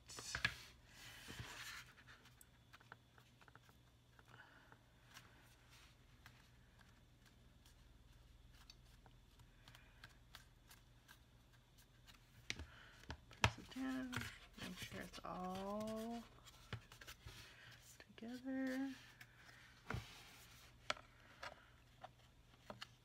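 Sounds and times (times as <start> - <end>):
low steady hum: 0.0 - 23.0
cardstock rustling and tapping: 8.6 - 17.4.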